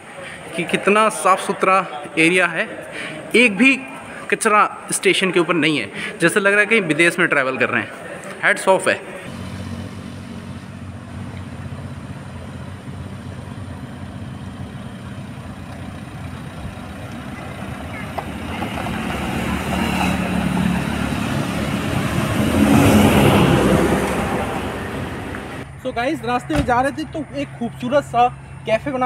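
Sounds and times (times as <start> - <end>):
bus passing: 0.0 - 29.0
road traffic engine hum: 0.0 - 29.0.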